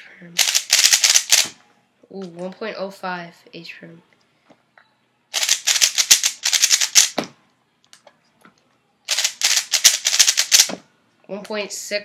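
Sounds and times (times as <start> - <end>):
speedcube plastic clacking: 0.4 - 1.6, 5.4 - 7.2, 9.1 - 10.8.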